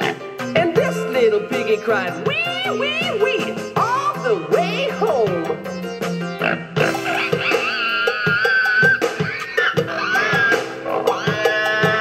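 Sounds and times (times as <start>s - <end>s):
upbeat children's song: 0.0s - 6.3s.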